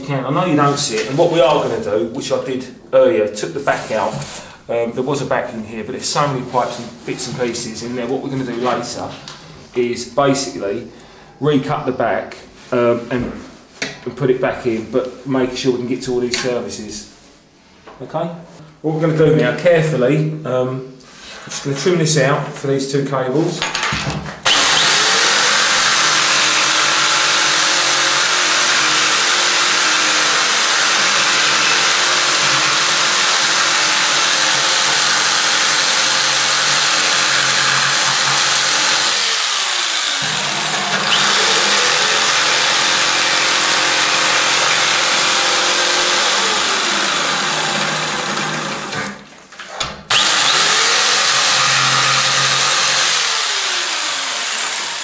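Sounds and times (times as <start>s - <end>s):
electric jigsaw cutting: 24.4s - 49.2s, 50.1s - 55.0s.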